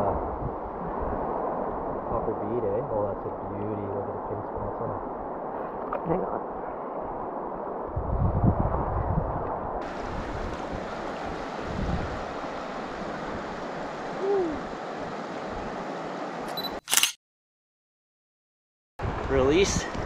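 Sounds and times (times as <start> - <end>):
river current rushing: 9.8 - 16.5
sharp loud click: 16.8 - 17.2.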